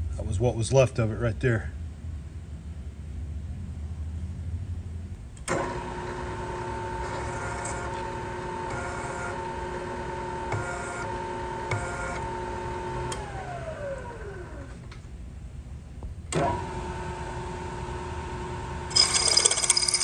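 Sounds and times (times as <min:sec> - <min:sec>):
spindle winding down whine: 0:05.5 - 0:14.8.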